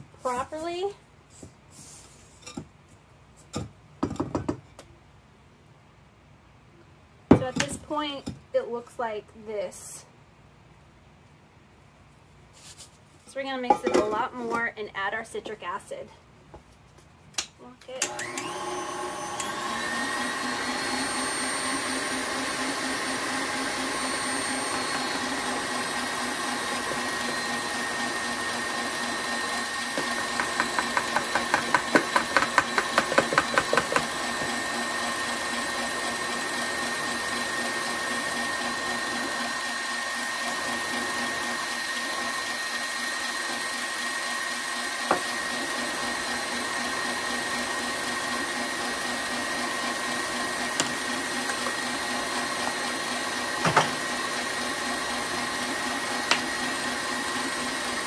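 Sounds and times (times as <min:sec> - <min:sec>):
stand mixer whisking: 0:18.2 - 0:58.0.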